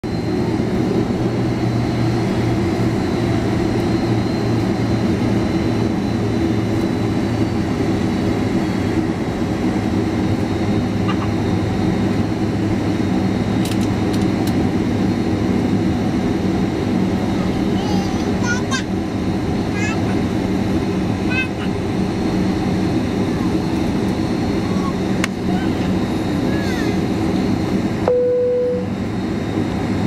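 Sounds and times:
jet engines humming in cabin: 0.0 - 30.0.

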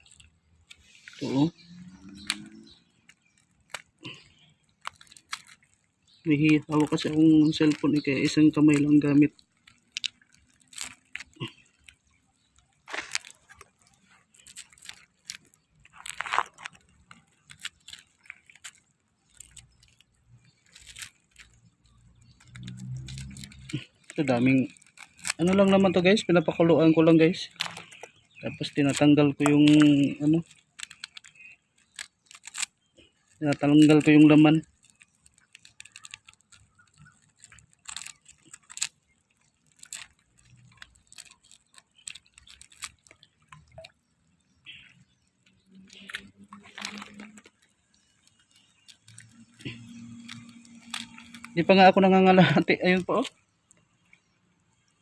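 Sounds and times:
mussel shells clicking and crunching: 0.0 - 55.0
shells snapping: 6.5 - 12.1, 22.4 - 25.9, 28.8 - 44.0.

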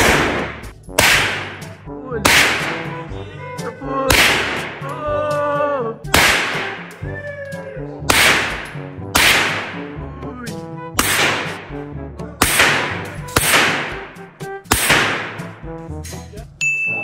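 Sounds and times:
pistol shots echoing indoors: 0.0 - 1.7, 2.3 - 2.9, 4.1 - 4.8, 6.1 - 6.9, 8.1 - 9.9, 11.0 - 11.7, 12.4 - 14.1, 14.7 - 15.5.

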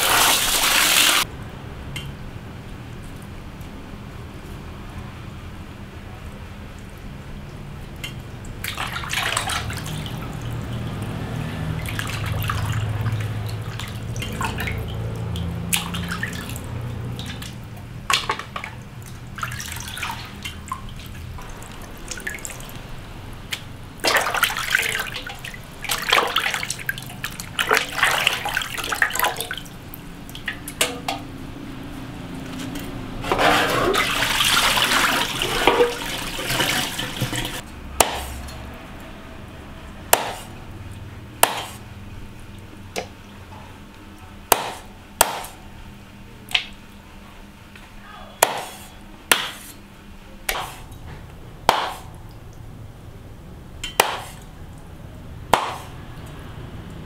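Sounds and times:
water splashing in a metal basin: 0.0 - 1.3, 7.8 - 31.4, 32.3 - 38.7.

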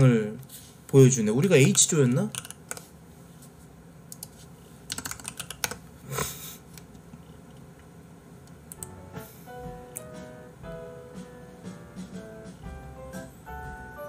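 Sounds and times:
keyboard typing: 1.5 - 2.9, 4.1 - 5.8, 8.7 - 9.0
light plucked music: 8.8 - 14.0.

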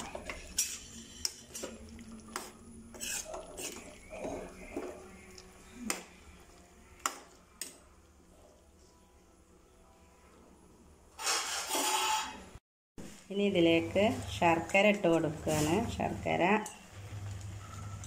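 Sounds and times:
spoon scraping a pan: 0.2 - 1.8, 2.4 - 5.0, 11.2 - 12.5.

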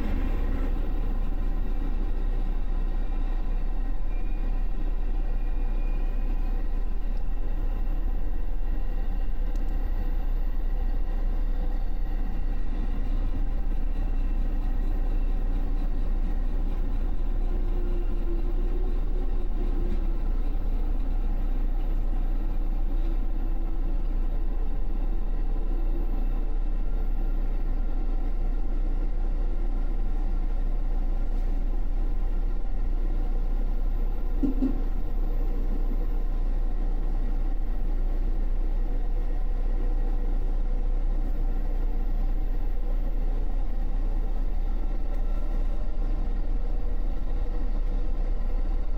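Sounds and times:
train wheels rumbling on rails: 0.0 - 48.9
brief tone: 3.9 - 6.9, 34.0 - 35.6.

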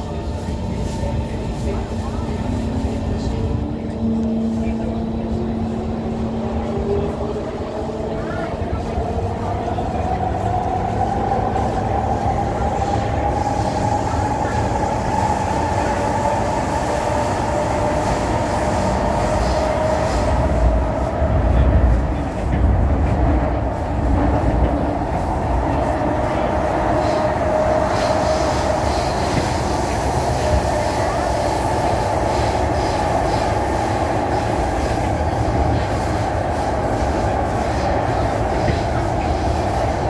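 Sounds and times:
train wheels rumbling: 0.0 - 40.0.

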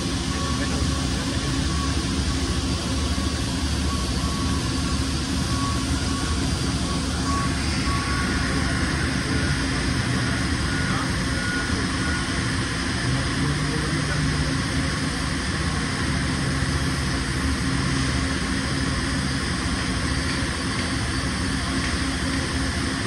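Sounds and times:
machinery rumble and hum: 0.0 - 23.0
faint short tone: 0.3 - 14.9.

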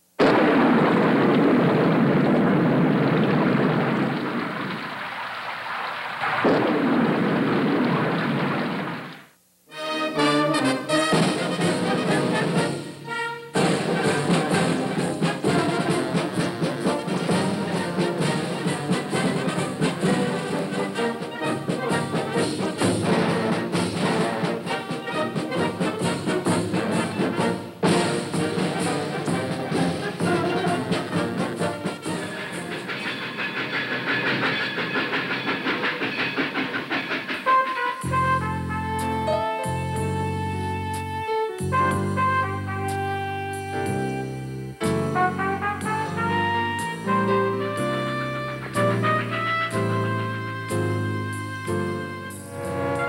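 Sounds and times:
rushing rumbling water: 0.2 - 9.3
orchestral music with brass: 9.7 - 36.2, 37.2 - 53.0.

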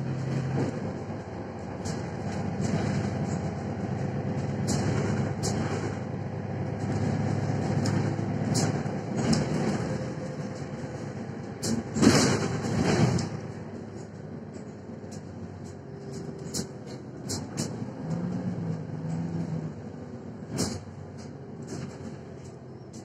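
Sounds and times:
bus engine and road rumble: 0.0 - 23.0.

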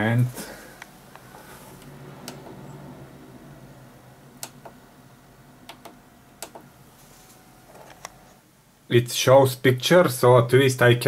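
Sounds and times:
low steady hum: 0.0 - 11.0
monitor buttons clicking: 1.2 - 2.9, 4.3 - 4.8, 5.6 - 6.7.

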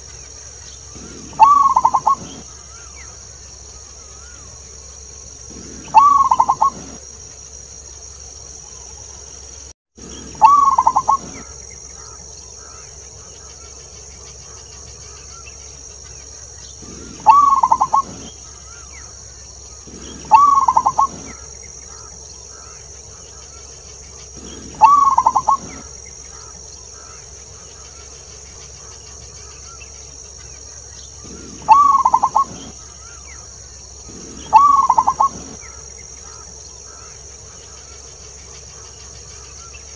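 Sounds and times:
steady high hiss: 0.0 - 39.9
dove cooing: 0.9 - 3.1, 5.4 - 7.0, 10.0 - 12.8, 16.8 - 22.8, 24.3 - 27.2, 31.2 - 33.2, 34.0 - 37.1.

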